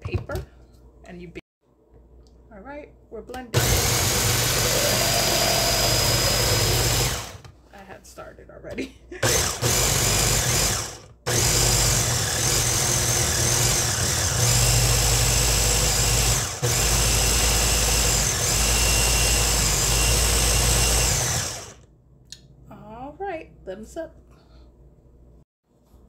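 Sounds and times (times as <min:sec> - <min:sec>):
blender motor running: 0:03.6 - 0:07.4, 0:09.2 - 0:21.8.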